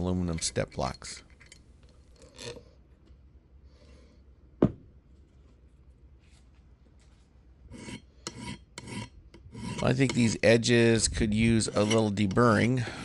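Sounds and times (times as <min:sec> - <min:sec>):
object knocked down on bench: 0:04.6 - 0:04.9.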